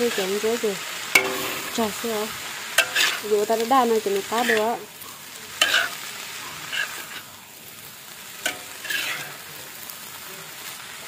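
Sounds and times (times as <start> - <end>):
greens sizzling in a wok: 0.0 - 11.0
metal ladle scraping wok: 1.0 - 3.3, 4.2 - 4.9, 5.6 - 7.3, 8.4 - 9.4
ladle clinking against wok: 1.2 - 1.9.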